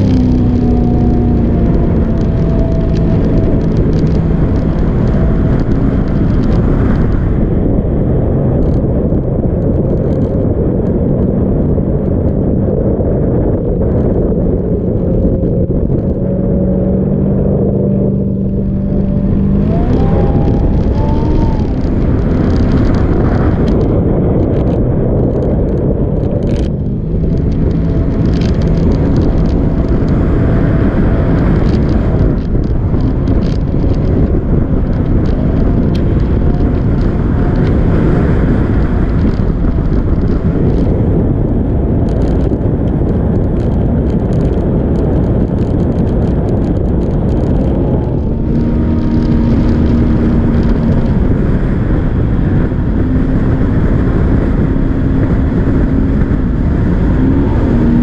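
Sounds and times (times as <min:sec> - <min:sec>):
boat engine running: 0:00.0 - 0:58.0
rushing noise: 0:13.6 - 0:58.0.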